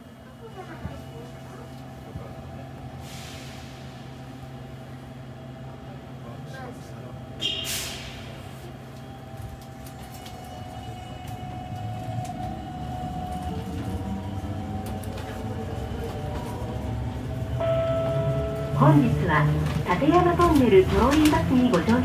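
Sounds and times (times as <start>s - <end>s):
bus engine rumble: 0.0s - 22.0s
air brake hiss: 3.0s - 4.2s, 7.5s - 8.6s.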